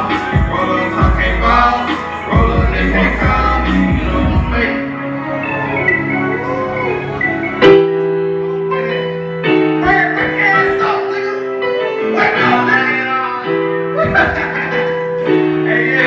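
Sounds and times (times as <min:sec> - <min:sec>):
person singing: 0:00.0 - 0:07.2
keyboard chords: 0:00.0 - 0:16.0.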